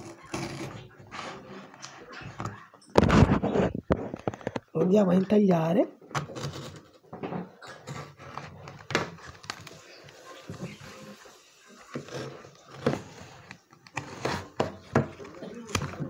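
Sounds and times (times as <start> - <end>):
knife cutting cardboard: 13.9 - 14.8.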